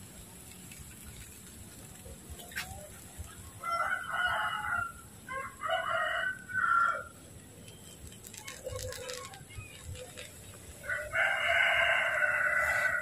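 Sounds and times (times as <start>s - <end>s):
rooster crowing: 3.6s - 7.1s, 10.8s - 13.0s.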